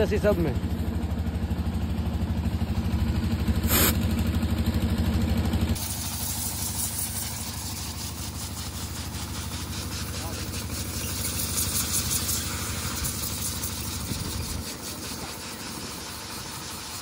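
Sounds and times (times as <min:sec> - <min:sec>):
engine idling: 0:00.0 - 0:17.0
air hose hiss at tyre valve: 0:03.6 - 0:04.0, 0:05.8 - 0:17.0
compressed air nozzle hissing: 0:03.6 - 0:04.0, 0:05.8 - 0:17.0.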